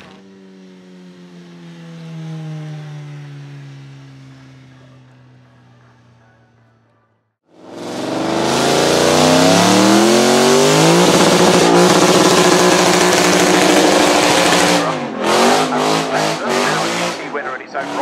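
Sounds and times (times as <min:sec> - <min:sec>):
car engine revving: 0:00.0 - 0:18.0
spinning tyres hissing: 0:10.2 - 0:17.4.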